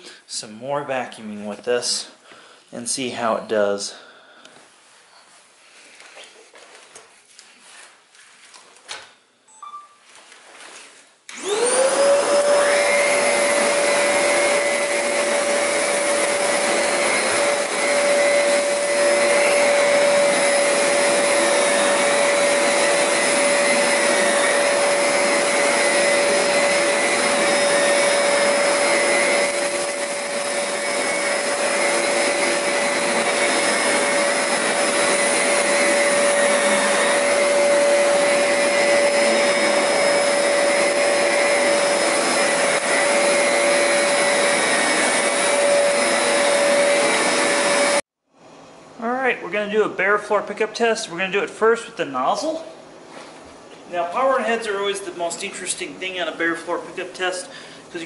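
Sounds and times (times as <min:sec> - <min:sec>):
vacuum cleaner motor whine: 0:11.3 - 0:48.0.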